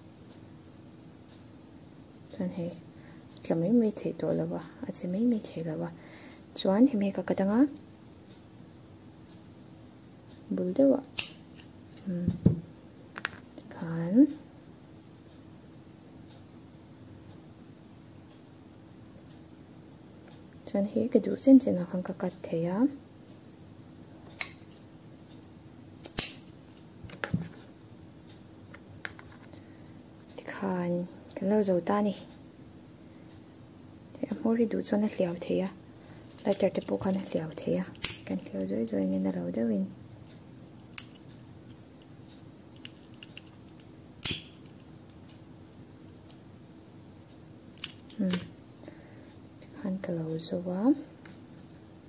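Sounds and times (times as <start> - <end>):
scissors snipping cord: 11.1 - 12.3, 24.3 - 24.8, 26.0 - 27.5, 36.4 - 39.4, 40.8 - 42.1, 42.8 - 46.4, 47.8 - 48.5
lighter click: 26.0 - 26.5.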